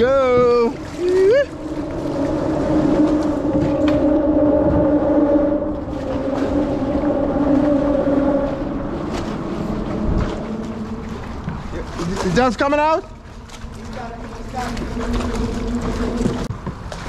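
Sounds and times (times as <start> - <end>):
traffic hum on a bridge: 0.3 - 12.2.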